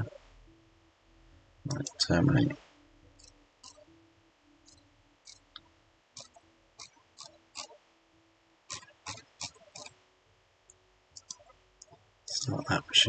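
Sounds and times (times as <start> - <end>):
computer mouse clicks: 4.7 - 5.4, 6.2 - 7.8, 8.7 - 9.9, 11.2 - 11.9.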